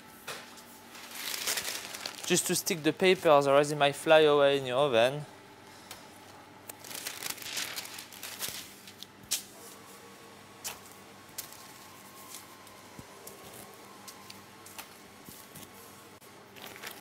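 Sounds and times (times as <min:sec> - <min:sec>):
baking paper rustling: 0:00.8 - 0:03.4, 0:06.8 - 0:09.1.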